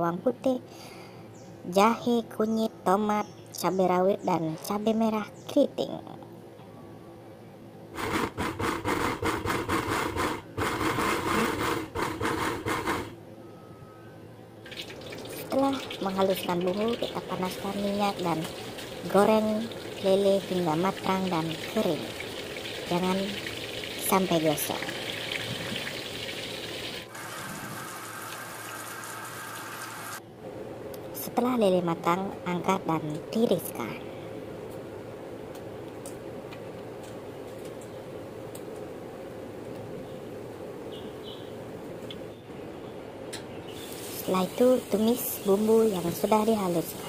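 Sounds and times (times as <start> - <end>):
mortar and pestle grinding: 8.0 - 13.1
fish deep-frying in hot oil: 14.6 - 30.2, 43.7 - 47.0.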